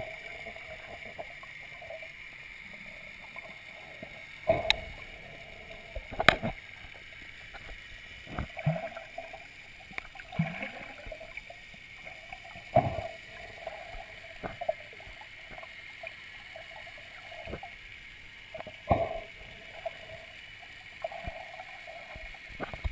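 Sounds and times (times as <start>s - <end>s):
faint steady hum: 0.0s - 22.9s
underwater thumps and swishes: 3.1s - 15.7s, 17.2s - 17.8s, 18.5s - 20.2s, 21.0s - 22.9s.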